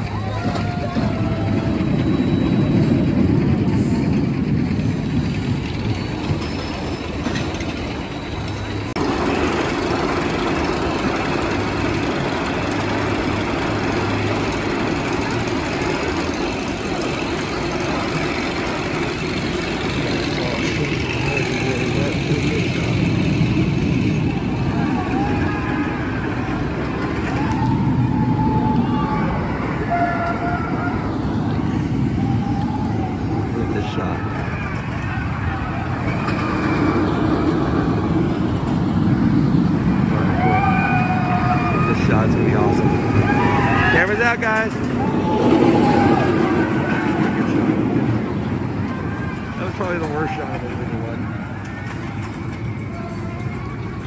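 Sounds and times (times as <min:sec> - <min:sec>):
roller coaster chain lift rumble: 0:00.0 - 0:54.0
high squeals: 0:00.1 - 0:03.2.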